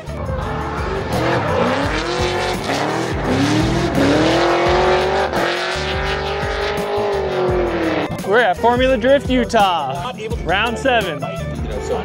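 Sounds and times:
car engine at high revs: 0.2 - 8.2.

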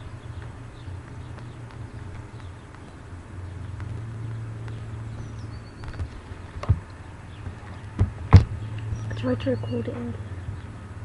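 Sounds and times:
low outdoor hum: 0.0 - 11.0
short knocks: 3.7 - 9.1.

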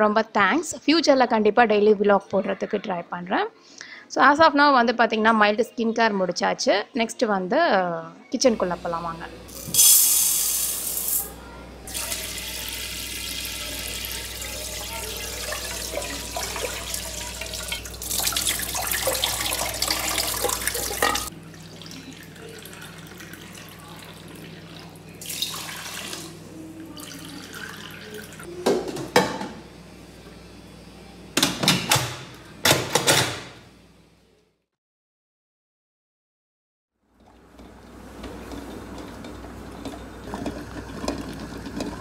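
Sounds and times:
tap water running into pot: 11.9 - 24.5, 25.2 - 26.3, 37.2 - 42.0
water pouring: 11.9 - 26.3, 37.2 - 42.0.

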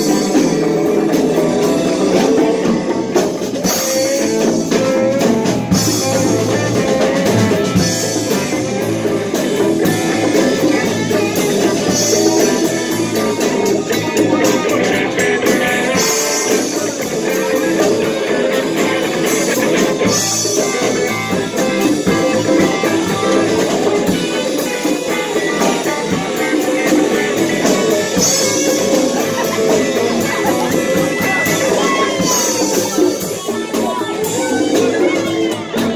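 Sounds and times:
electric guitar: 0.0 - 35.9
live band playing: 0.0 - 35.9.

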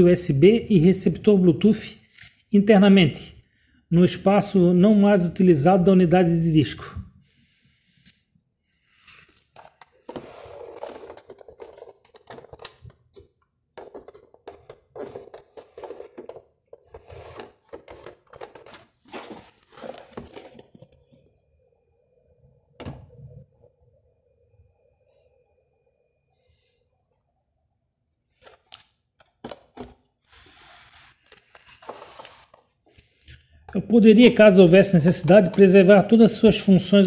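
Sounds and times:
hand handling plastic case: 9.0 - 21.2, 28.4 - 30.4, 31.2 - 33.2, 35.2 - 36.1.

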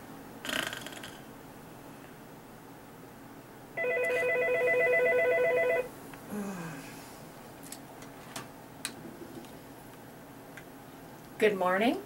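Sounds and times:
telephone ringing: 3.8 - 5.9.

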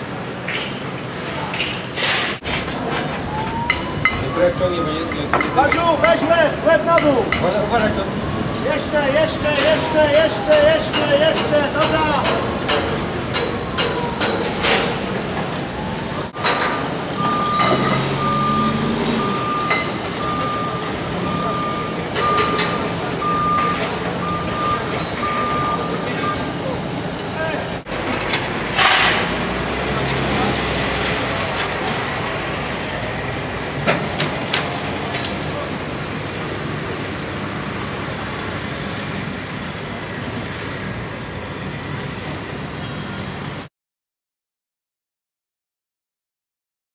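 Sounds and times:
heavy machinery humming: 2.0 - 43.7
reversing alarm beeping: 3.2 - 5.3, 8.5 - 11.9, 13.5 - 26.7
sharp metallic knocks: 6.9 - 7.7, 9.5 - 15.2, 28.0 - 30.4
engine running: 7.5 - 43.6.

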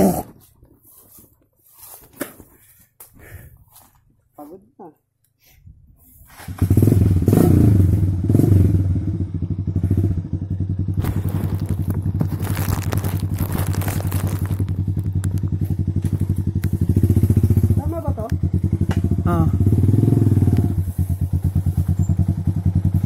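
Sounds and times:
dirt bike engine: 6.3 - 23.0.

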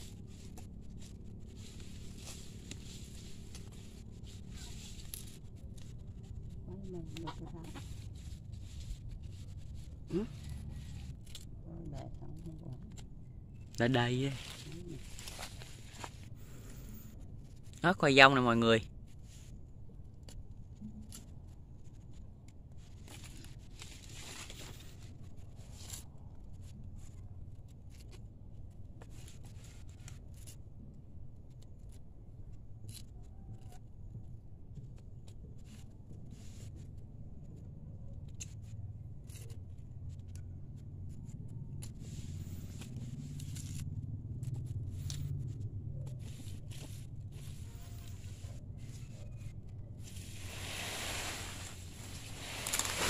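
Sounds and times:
hands scraping through soil: 0.0 - 6.0, 13.8 - 16.8, 46.2 - 53.0.

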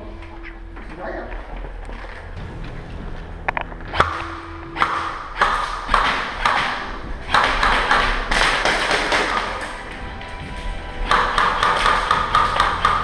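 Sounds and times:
sharp taps and knocks with echo: 3.5 - 10.0, 11.0 - 13.0.

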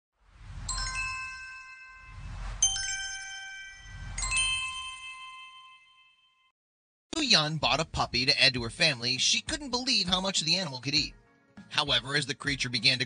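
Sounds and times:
low rumble: 0.2 - 3.0, 3.8 - 4.8
swelling whooshes: 0.2 - 5.0
bright chiming tones: 0.5 - 6.5.

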